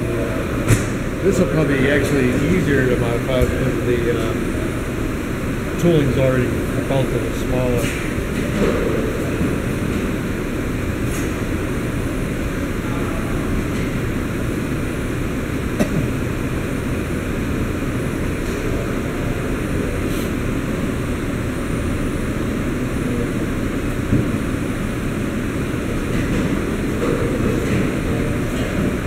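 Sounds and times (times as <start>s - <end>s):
factory machinery drone: 0.0s - 29.0s.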